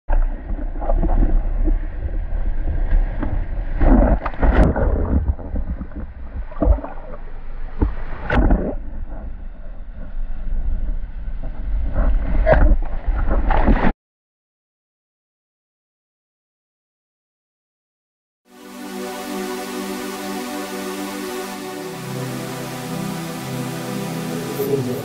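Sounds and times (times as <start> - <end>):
surf and splashing water: 0.1 - 13.9, 18.6 - 25.0
wind buffeting microphone: 0.3 - 7.1.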